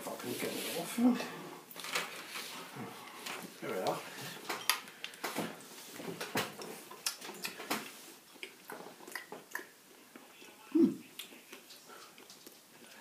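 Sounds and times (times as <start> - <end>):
chewing: 6.6 - 13.0.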